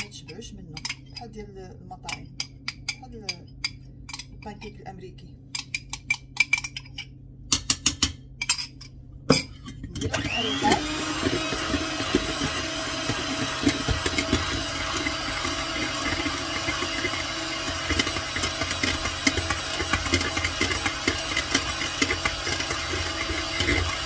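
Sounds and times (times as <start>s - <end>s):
electric hand mixer whisking: 10.0s - 24.0s.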